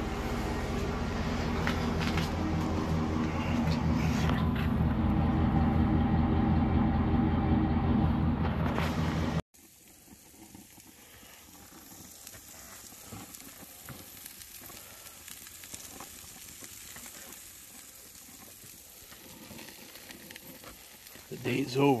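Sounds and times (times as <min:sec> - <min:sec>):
burger patties sizzling on grill: 0:09.6 - 0:22.0.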